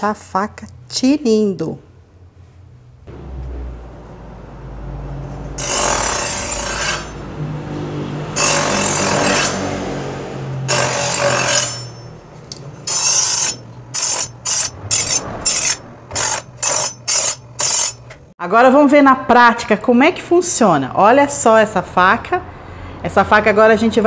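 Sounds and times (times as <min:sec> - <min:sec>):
knife blade grinding: 0:05.6 - 0:07.2, 0:10.7 - 0:18.2
knife sharpener motor hum: 0:08.4 - 0:09.7, 0:10.7 - 0:12.1, 0:12.8 - 0:18.0.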